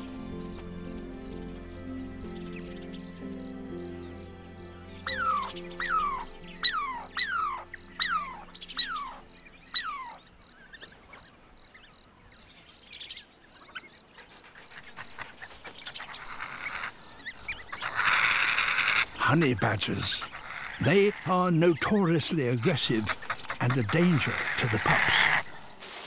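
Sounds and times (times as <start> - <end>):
whistled animal calls: 5.1 - 10.2
fast insect ticking: 12.8 - 25.8.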